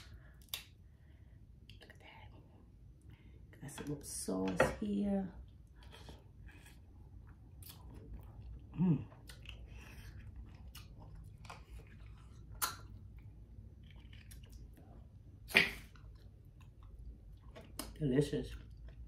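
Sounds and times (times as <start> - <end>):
person chewing: 5.7 - 19.0.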